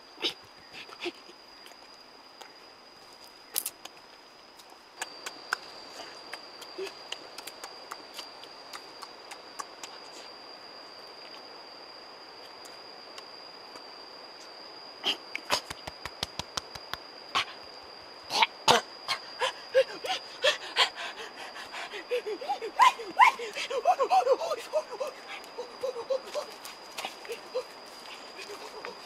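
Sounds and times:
steady high-pitched whine: 0:00.0 - 0:29.0
wet chewing clicks and smacks: 0:06.3 - 0:10.0.

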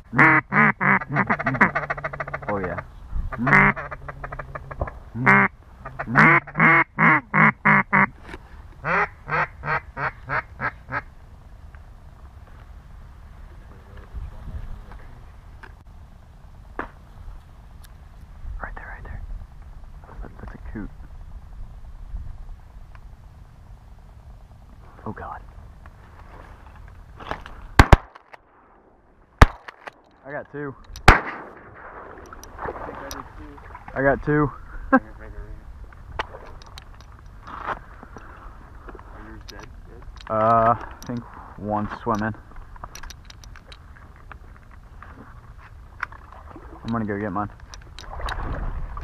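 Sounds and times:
mallard quacking: 0:00.1 - 0:08.1, 0:08.8 - 0:11.0
short pitched calls: 0:00.1 - 0:08.1
shotgun blasts: 0:27.8 - 0:30.0, 0:31.0 - 0:32.9.

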